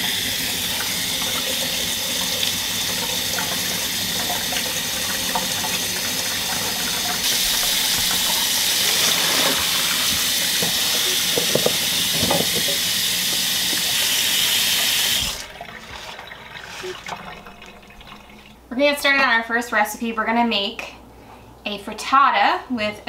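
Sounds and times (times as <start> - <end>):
tap running into steel sink: 7.2 - 14.2.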